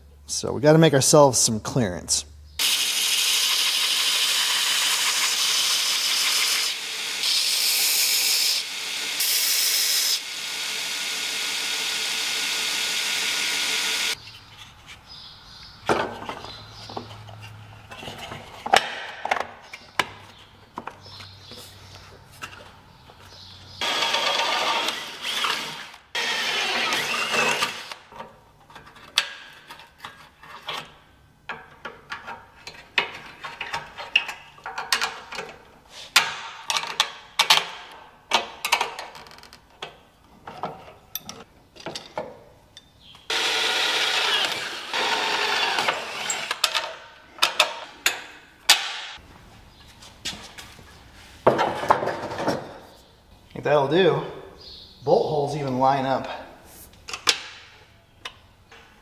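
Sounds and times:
cordless drill drilling metal: 0:02.6 - 0:14.2, 0:23.8 - 0:28.0, 0:43.3 - 0:46.7.

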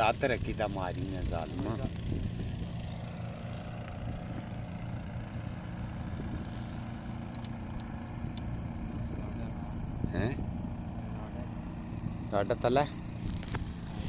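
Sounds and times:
engine droning: 0:00.0 - 0:14.0.

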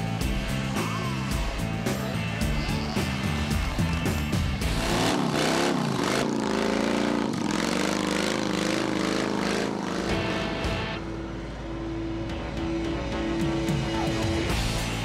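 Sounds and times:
music: 0:00.0 - 0:06.1, 0:09.9 - 0:15.0
motorcycle engine revving: 0:00.0 - 0:15.0.

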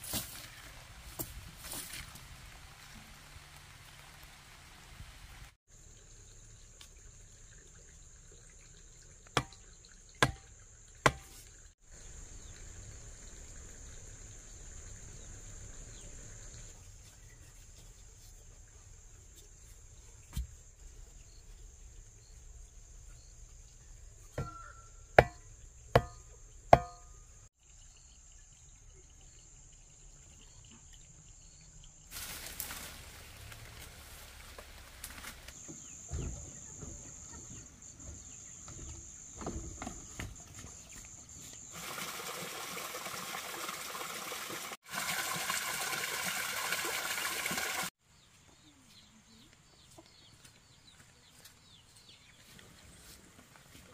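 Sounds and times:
metal bar thudding into ground: 0:26.0 - 0:27.2.

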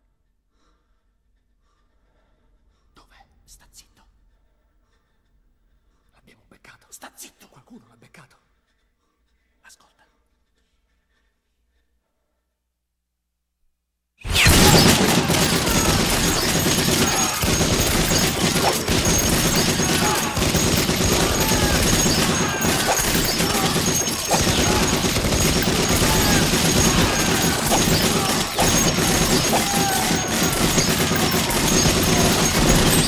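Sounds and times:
rapid gunfire barrage: 0:14.2 - 0:33.0.

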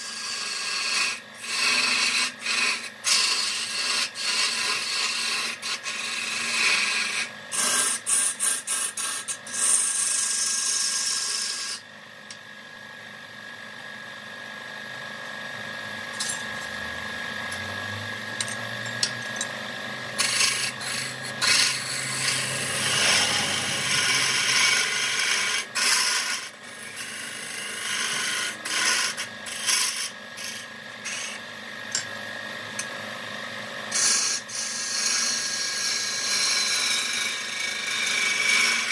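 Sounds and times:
turning tool scraping spinning wood: 0:00.0 - 0:11.8, 0:18.3 - 0:31.4
faint machine whine: 0:00.0 - 0:38.9.

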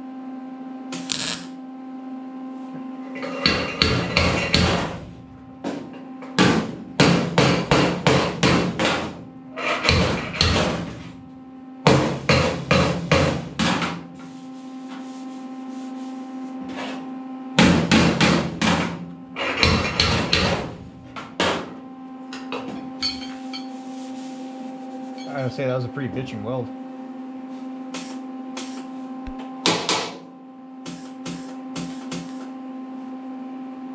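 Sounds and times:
steady hum: 0:00.0 - 0:33.8.

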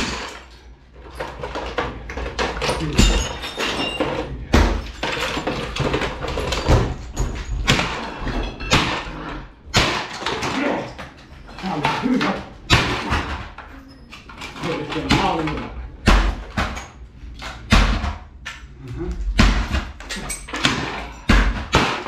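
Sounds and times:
plastic pieces clattering: 0:00.0 - 0:09.2
metal bat smashing plastic: 0:07.6 - 0:10.9, 0:11.7 - 0:13.5, 0:19.4 - 0:22.0.

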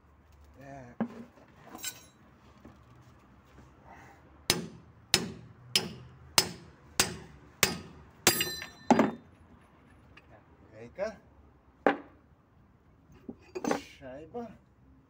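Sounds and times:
hammer striking steel: 0:04.5 - 0:09.2.

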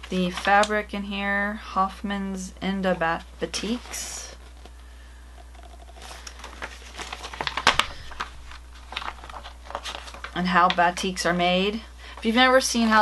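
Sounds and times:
paper pages rustling: 0:05.5 - 0:10.9.

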